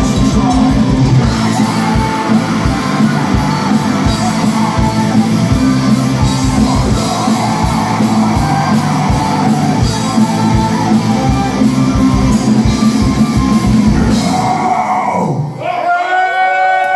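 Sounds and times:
electric guitar: 0.0 - 15.6.

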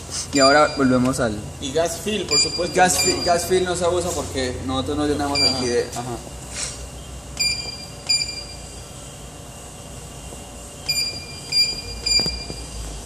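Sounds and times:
keypad beeps: 2.3 - 3.5, 5.3 - 5.8, 7.4 - 8.8, 10.8 - 13.0.

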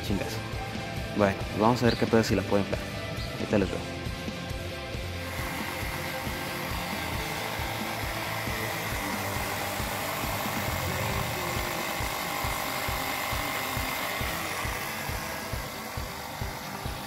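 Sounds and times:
air compressor running: 4.0 - 17.0.

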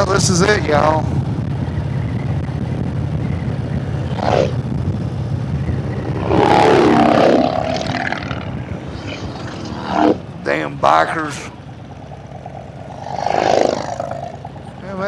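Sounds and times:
motorcycle engine cruising: 0.0 - 15.0
pitched sound rising and falling: 5.8 - 9.0.

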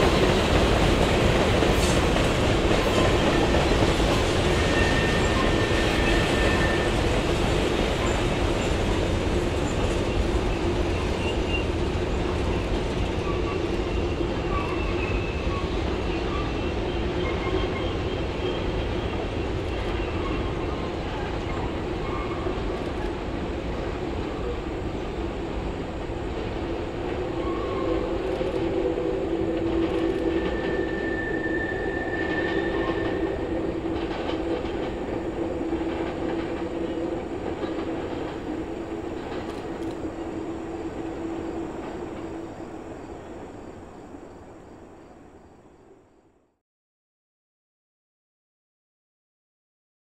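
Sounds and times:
steel wheels rumbling on rail: 0.0 - 44.5
high wheel squeal: 30.2 - 33.8.

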